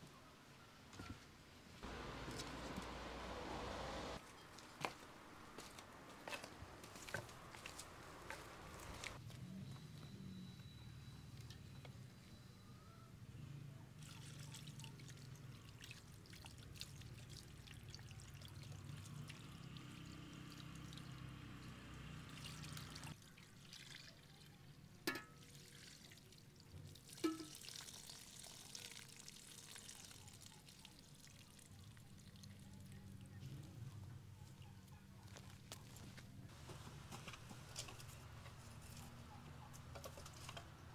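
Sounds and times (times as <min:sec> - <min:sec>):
water pouring in thin stream: 0:14.0 - 0:21.1, 0:22.3 - 0:24.6, 0:25.4 - 0:32.7.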